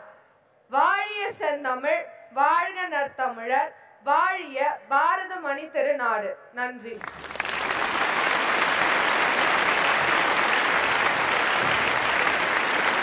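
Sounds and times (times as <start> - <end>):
large audience applauding: 7.0 - 13.0.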